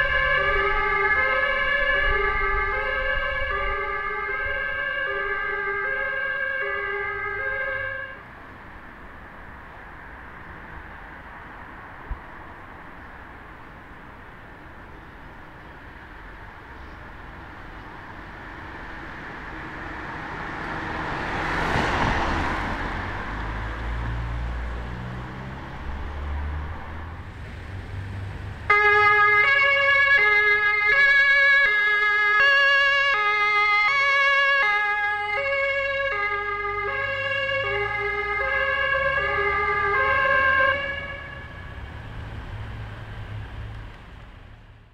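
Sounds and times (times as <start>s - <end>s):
two-tone emergency siren: 0.0s - 8.2s, 28.7s - 41.8s
vehicle engine and tyre noise: 0.0s - 44.9s.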